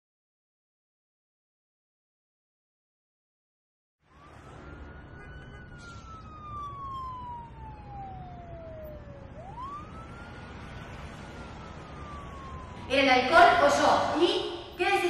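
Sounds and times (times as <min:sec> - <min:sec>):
emergency siren wailing: 0:04.0 - 0:15.0.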